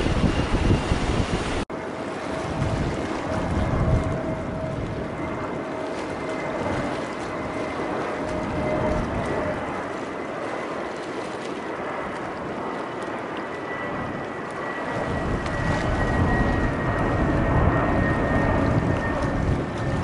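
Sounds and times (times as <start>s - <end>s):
jet engine noise with high whine: 0.0s - 20.0s
low rumble: 15.0s - 20.0s.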